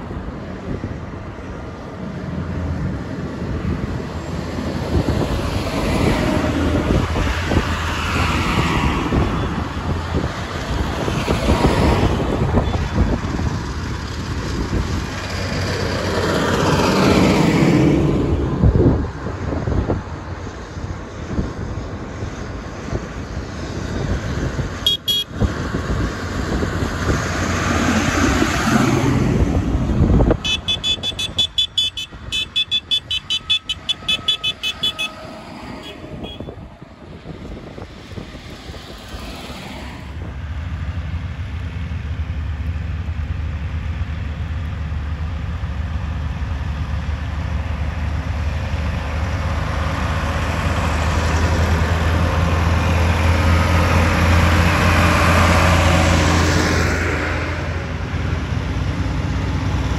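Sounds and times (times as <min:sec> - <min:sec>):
tractors driving past: 0:00.0 - 0:59.9
horn toots: 0:24.8 - 0:25.4, 0:30.3 - 0:36.6.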